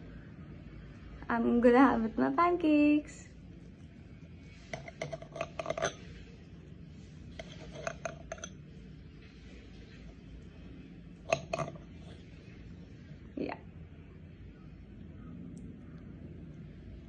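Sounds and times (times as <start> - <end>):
knife and fork scraping plate: 4.6 - 6.2, 7.3 - 8.6, 11.3 - 12.2.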